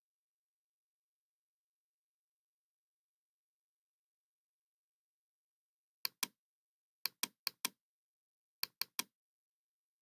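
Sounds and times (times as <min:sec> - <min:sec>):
mouse button clicking: 0:06.1 - 0:06.4, 0:07.1 - 0:07.8, 0:08.6 - 0:09.1.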